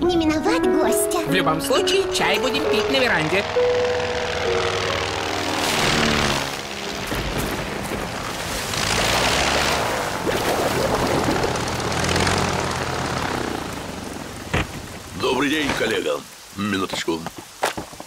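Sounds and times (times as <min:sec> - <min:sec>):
propeller plane engine droning: 0:01.1 - 0:15.2
steady rain: 0:05.9 - 0:18.0.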